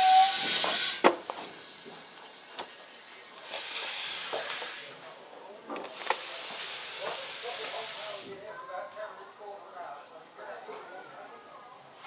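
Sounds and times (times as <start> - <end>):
steam locomotive hissing: 0.0 - 5.2, 5.9 - 8.4.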